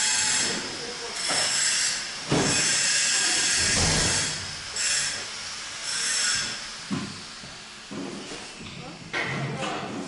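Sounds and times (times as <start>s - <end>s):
loud hissing bursts: 2.0s - 7.4s.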